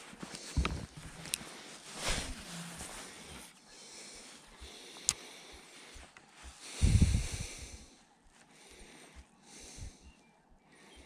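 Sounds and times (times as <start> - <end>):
microphone handling noise: 0.0 - 3.5, 6.4 - 7.7
wind buffeting microphone: 6.7 - 7.8.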